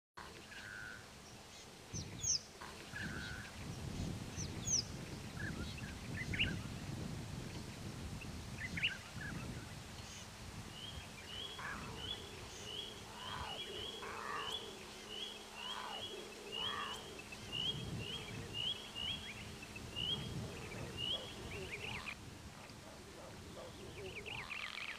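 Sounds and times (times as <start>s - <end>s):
birds chirping and whistling: 10.8s - 22.2s.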